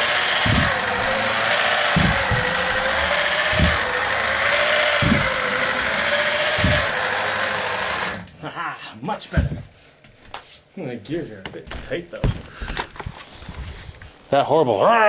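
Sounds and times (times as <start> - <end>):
robot legs thudding: 0.0 - 8.3
robot motor grinding whine: 0.0 - 8.3.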